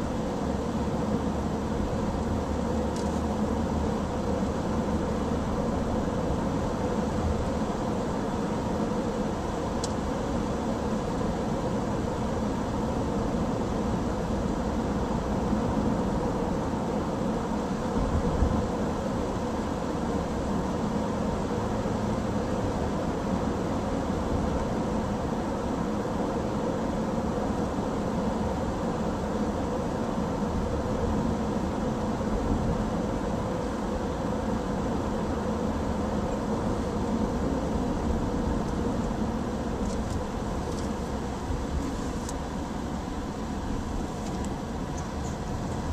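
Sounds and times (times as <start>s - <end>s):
car road and engine noise: 0.0s - 45.9s.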